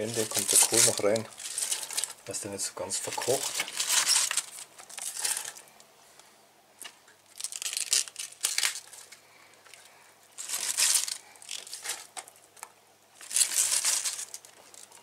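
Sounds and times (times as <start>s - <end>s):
cabbage rustling and crunching: 0.0s - 2.3s, 3.0s - 5.7s, 7.2s - 9.1s, 10.3s - 12.2s, 13.2s - 15.0s.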